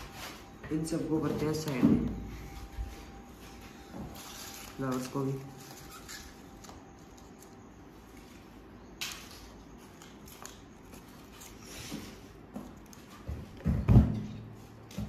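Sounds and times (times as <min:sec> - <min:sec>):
paper flowers handled: 0:02.5 - 0:13.6.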